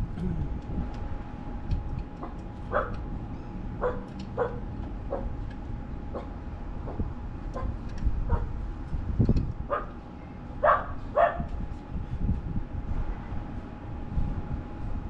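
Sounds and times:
low rumble: 0:00.0 - 0:15.0
dog barking: 0:02.7 - 0:03.0, 0:03.8 - 0:05.3, 0:08.3 - 0:08.5, 0:09.7 - 0:10.0, 0:10.6 - 0:11.5.

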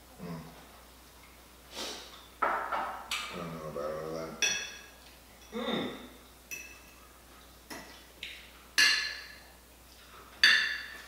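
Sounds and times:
cutlery clinking on plates: 0:06.5 - 0:07.0, 0:08.8 - 0:09.4, 0:10.4 - 0:11.0.

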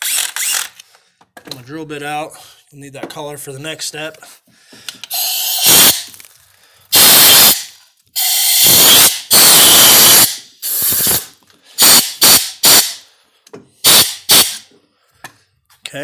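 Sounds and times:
compressed-air blow gun hissing: 0:06.9 - 0:13.0.

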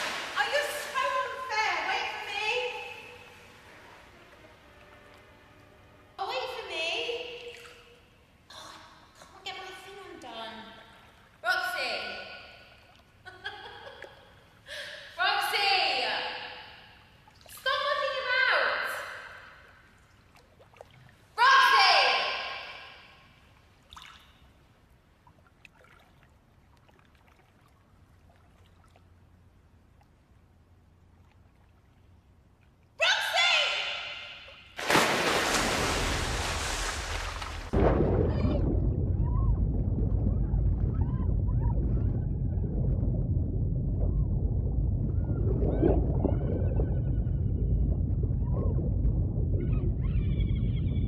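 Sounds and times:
faint pool water trickles: 0:00.0 - 0:37.8
muffled underwater pool rumble: 0:37.7 - 0:51.0.

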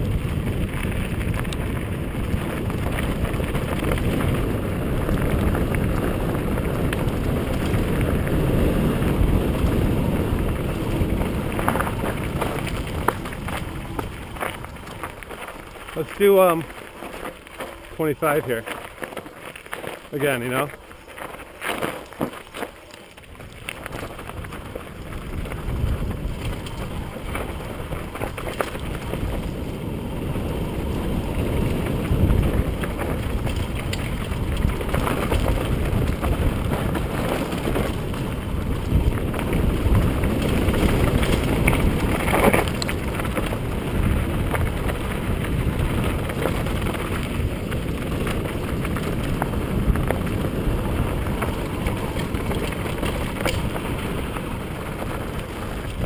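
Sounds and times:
wind on microphone: 0:00.0 - 0:16.7, 0:23.3 - 0:56.0
bike rattling: 0:00.0 - 0:56.0
tyres crunching over loose stones: 0:00.0 - 0:56.0.

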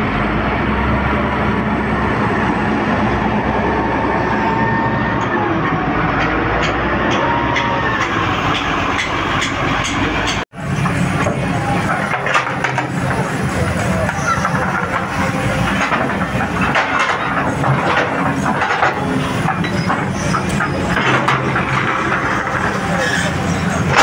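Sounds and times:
heavy engine running: 0:00.0 - 0:24.0
people talking: 0:10.6 - 0:24.0.

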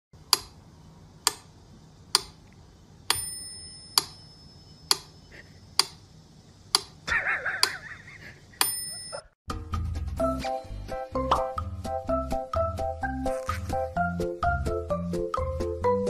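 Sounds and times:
bell-like ring: 0:03.1 - 0:04.9, 0:08.6 - 0:09.4.

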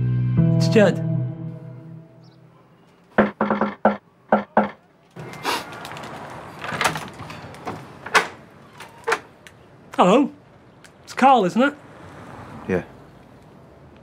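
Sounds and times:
knocking on glass-panelled door: 0:03.2 - 0:04.8
clatter at door: 0:03.2 - 0:09.3.

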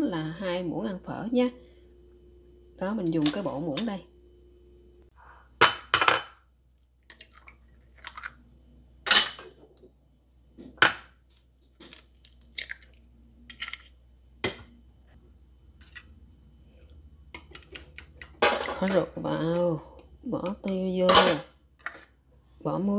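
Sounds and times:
eggs cracking on bowl rim: 0:11.9 - 0:13.0.

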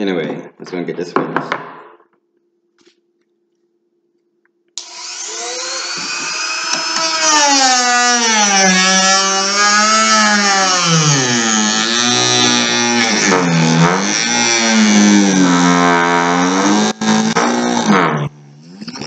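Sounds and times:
handheld power tool on metal: 0:04.8 - 0:18.8.

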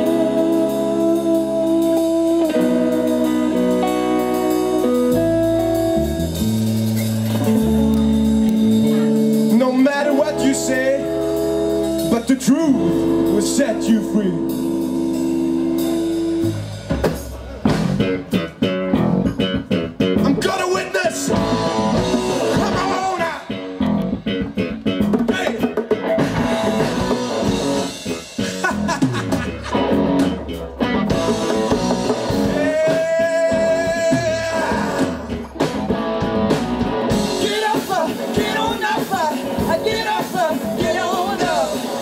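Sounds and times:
live rock band playing: 0:00.0 - 0:42.0
people singing: 0:37.4 - 0:42.0.

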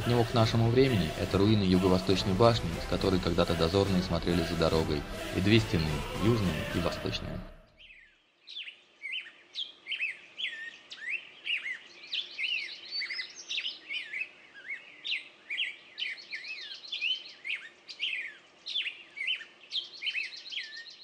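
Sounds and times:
small birds chirping: 0:07.6 - 0:21.0.

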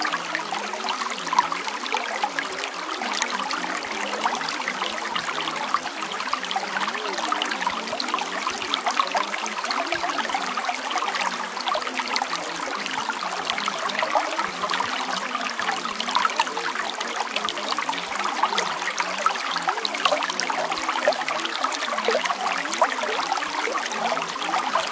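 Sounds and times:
water trickling and babbling: 0:00.0 - 0:24.9.

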